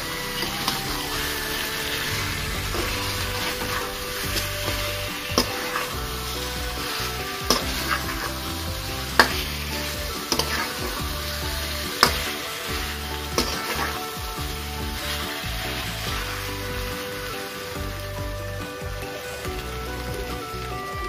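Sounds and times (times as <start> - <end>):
chicken sizzling in a wok: 0.0 - 21.0.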